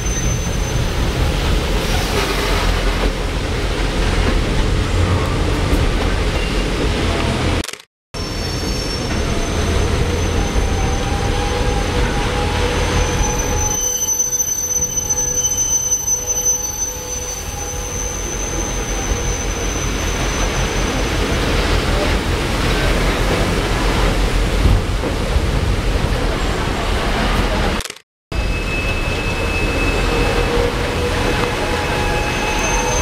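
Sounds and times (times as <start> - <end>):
train wheels rumbling on rail: 0.0 - 7.6, 16.3 - 27.8, 28.4 - 33.0
high thin wheel squeal: 8.2 - 21.0, 28.4 - 33.0.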